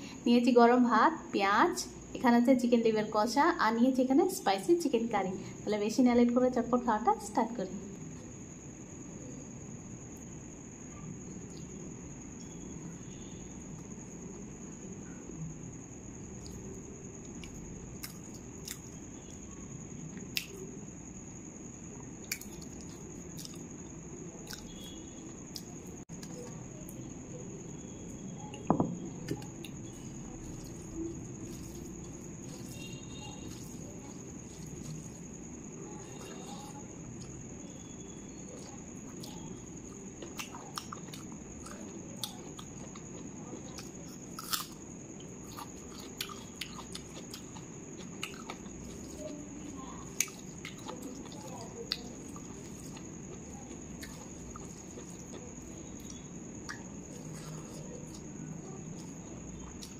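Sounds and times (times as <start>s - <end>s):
faint high whine: 0.0s - 42.4s
chewing and wet mouth sounds: 16.2s - 19.4s, 22.0s - 27.0s, 28.5s - 59.9s
loud knock: 28.7s - 29.0s
fingers squishing rice and curry: 29.2s - 59.9s.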